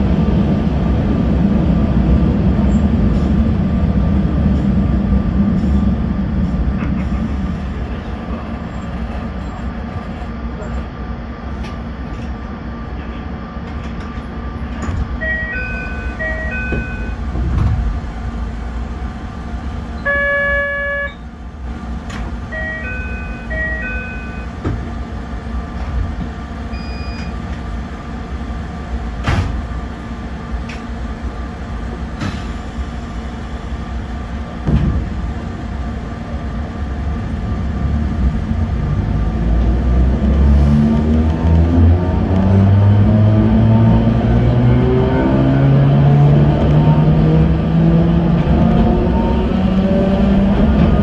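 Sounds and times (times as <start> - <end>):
train electrical hum: 0.0 - 51.0
electronic chime tones: 15.2 - 17.2, 22.5 - 24.5
buzzer-like tone: 20.1 - 21.2.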